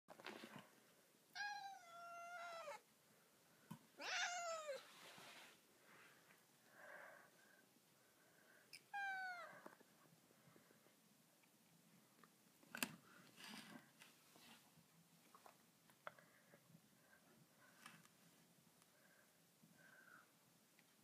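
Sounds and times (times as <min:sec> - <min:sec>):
cat meowing: 0:01.4 - 0:02.8, 0:04.0 - 0:04.9, 0:08.9 - 0:09.7.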